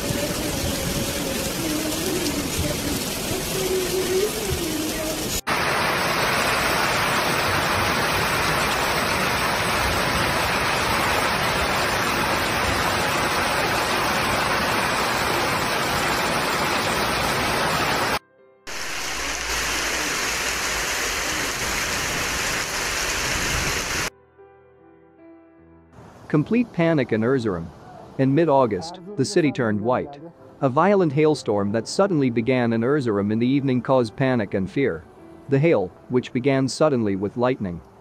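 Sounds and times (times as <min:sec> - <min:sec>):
hail and heavy rain: 0:00.0 - 0:24.1.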